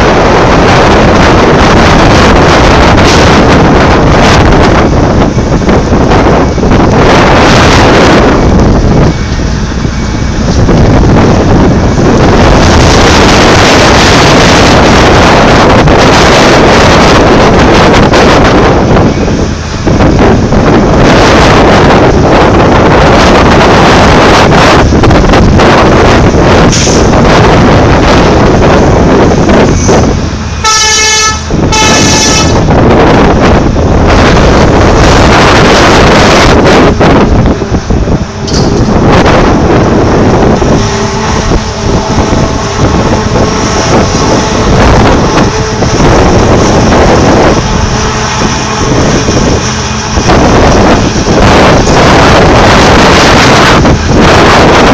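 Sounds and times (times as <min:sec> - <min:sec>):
excavator running: 0:00.0 - 0:54.9
wind buffeting microphone: 0:00.0 - 0:54.9
horn blasts: 0:30.6 - 0:32.7, 0:40.6 - 0:54.4.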